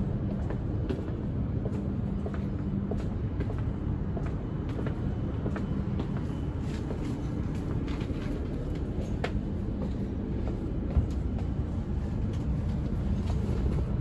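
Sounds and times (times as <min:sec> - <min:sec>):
train interior rumble: 0:00.0 - 0:14.0.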